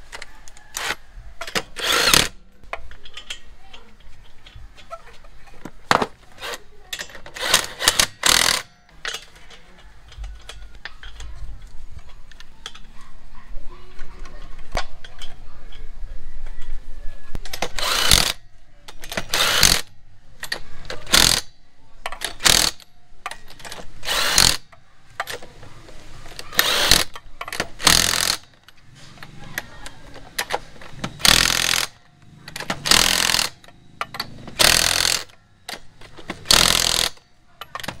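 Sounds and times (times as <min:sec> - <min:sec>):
impact wrench hammering: 0:00.8 - 0:02.9, 0:05.9 - 0:09.2, 0:19.0 - 0:21.5, 0:22.1 - 0:25.4, 0:26.5 - 0:28.5, 0:30.4 - 0:38.0.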